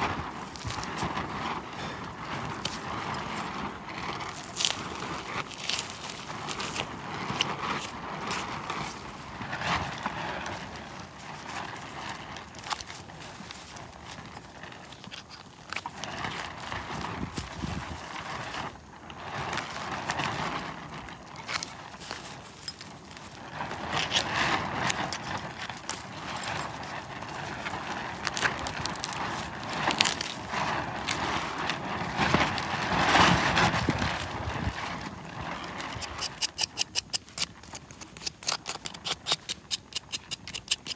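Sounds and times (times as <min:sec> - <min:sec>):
knife scraping skin: 0:36.0 - 0:40.9.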